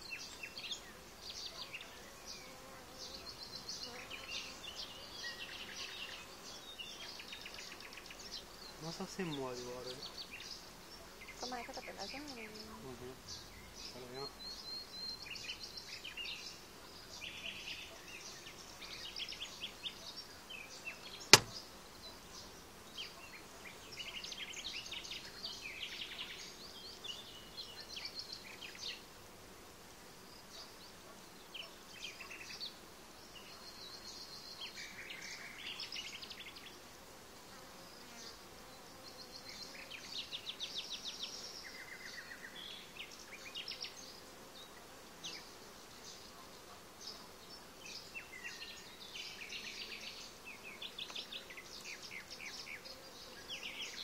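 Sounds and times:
honeybees buzzing: 0.0s - 14.6s, 15.2s - 34.1s
sharp knock: 21.3s - 21.6s.

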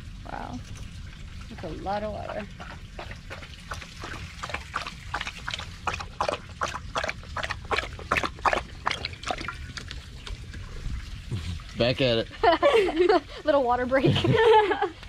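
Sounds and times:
dog lapping water: 0.7s - 12.2s.

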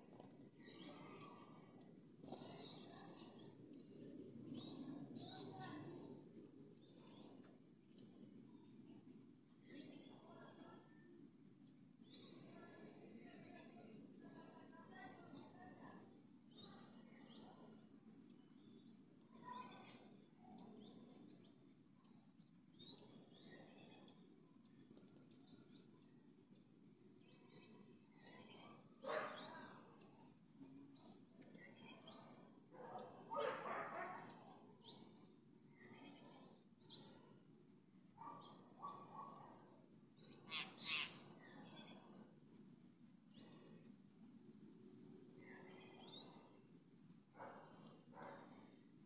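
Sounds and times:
birds chirping: 0.0s - 49.0s.

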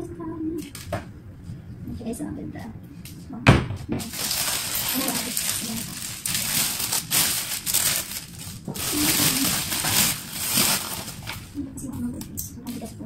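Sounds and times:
plastic wrapping crinkling: 4.0s - 11.6s.

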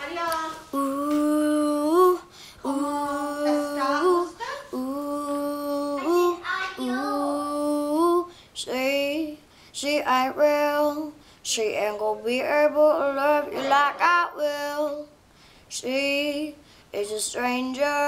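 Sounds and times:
girl singing unaccompanied: 0.0s - 18.0s
girl breathing: 1.5s - 2.8s, 8.2s - 8.6s, 9.4s - 9.8s, 11.1s - 11.5s, 15.3s - 15.8s, 16.6s - 17.0s.

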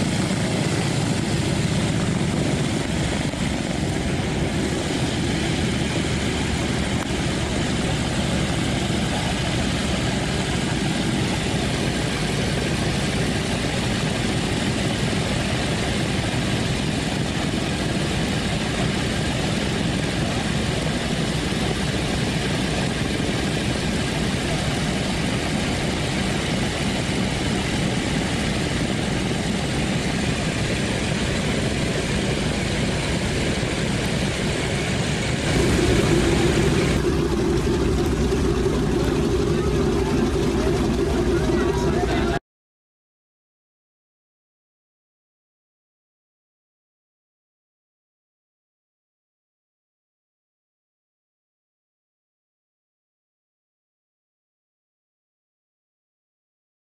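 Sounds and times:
aircraft radial engines idling: 0.0s - 42.4s.

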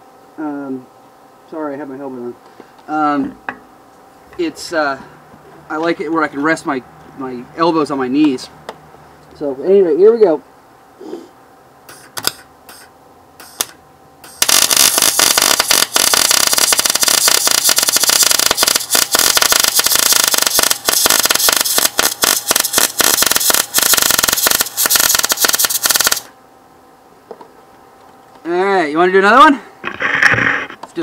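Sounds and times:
welding arc crackling: 11.9s - 26.3s.

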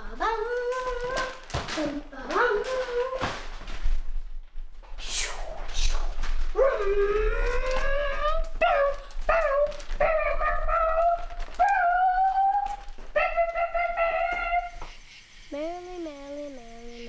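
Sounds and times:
dog howling: 6.6s - 14.8s.

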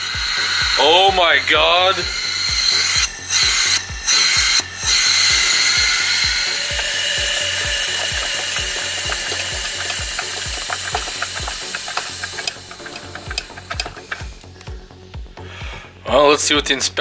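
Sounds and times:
compressed air hissing: 0.0s - 16.0s.

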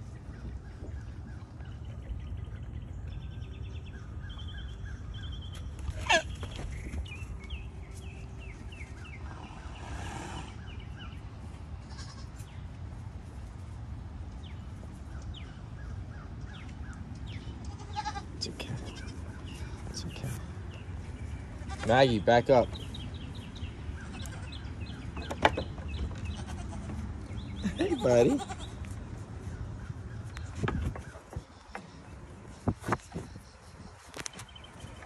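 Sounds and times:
goats bleating: 11.8s - 12.4s, 17.6s - 19.2s, 26.2s - 27.0s, 27.6s - 28.8s.

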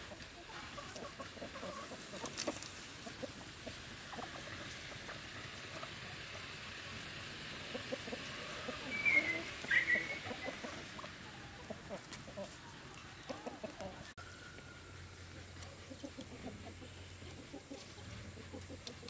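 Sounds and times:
chickens clucking: 0.0s - 19.0s
chicken squawks: 7.6s - 12.6s.

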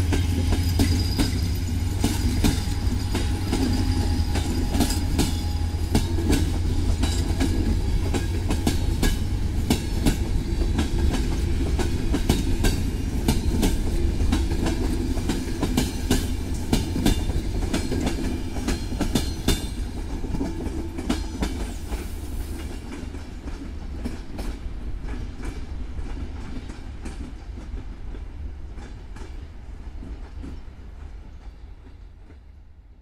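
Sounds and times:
train wheels clattering over rails: 0.0s - 32.5s
train low rumble: 0.0s - 33.0s.

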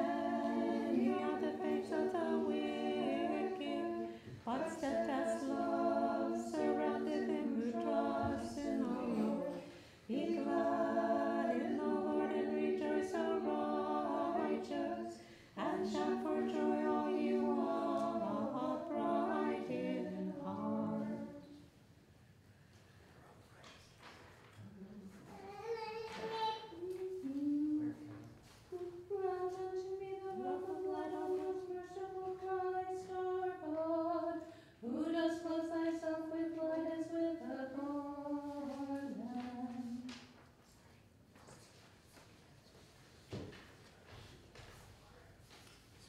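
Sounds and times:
choir chanting a cappella: 0.0s - 21.7s, 28.7s - 40.1s.

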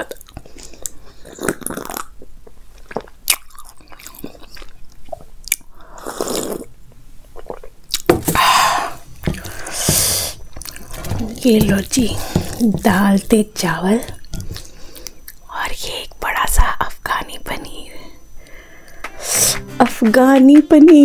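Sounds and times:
chewing: 0.0s - 6.7s, 9.3s - 11.4s.

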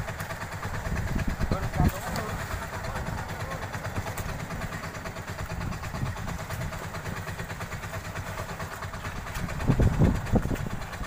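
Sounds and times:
boat engine idling: 0.0s - 11.0s.

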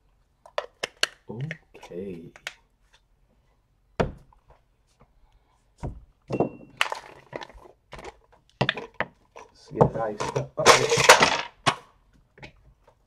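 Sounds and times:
items clattering on a table: 5.9s - 11.8s.

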